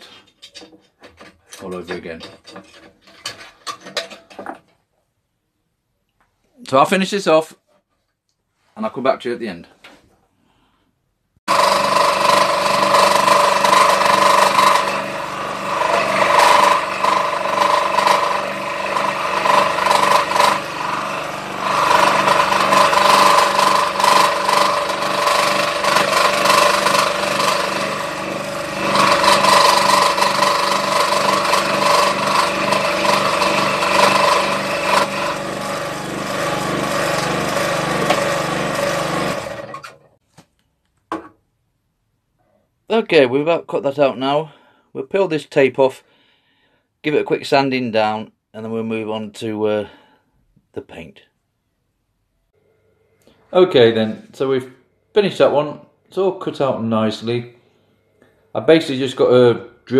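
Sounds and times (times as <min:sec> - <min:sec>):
scroll saw cutting board: 0:11.5 - 0:40.1.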